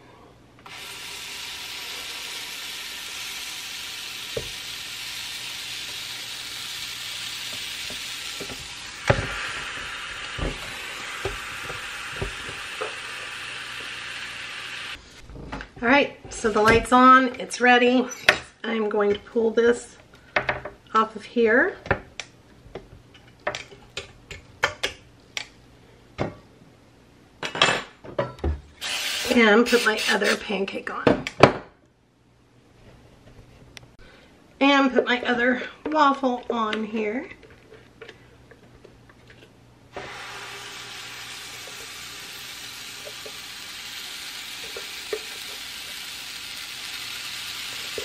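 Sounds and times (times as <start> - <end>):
waffle batter sizzling: 0.7 - 15.0, 39.9 - 48.0.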